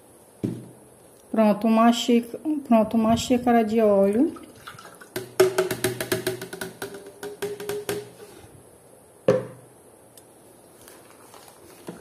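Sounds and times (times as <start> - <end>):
oil glugging and splashing: 4.4 - 5.7.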